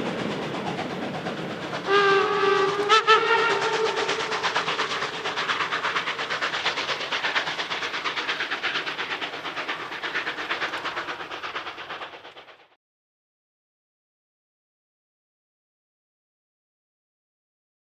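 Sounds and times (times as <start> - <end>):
steam locomotive chuffing: 0.0 - 12.8
steam whistle: 1.8 - 4.7.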